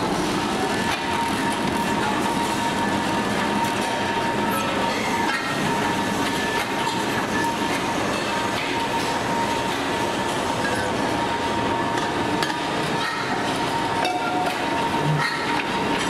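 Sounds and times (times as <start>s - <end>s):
constant machine whine: 0.0s - 16.0s
press line machinery din: 0.0s - 16.0s.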